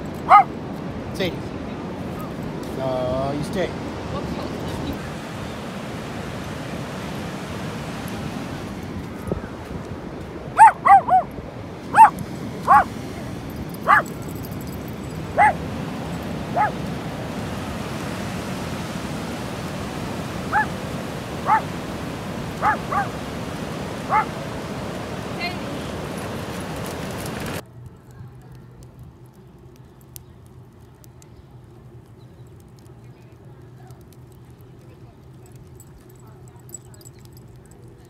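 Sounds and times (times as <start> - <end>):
surf: 0.0 - 27.6
wind: 0.0 - 38.0
dog barking: 0.2 - 0.5, 10.6 - 11.3, 11.9 - 12.9, 13.8 - 14.1, 15.3 - 15.6, 16.5 - 16.8, 20.5 - 20.8, 21.4 - 21.7, 22.6 - 23.2, 24.0 - 24.4.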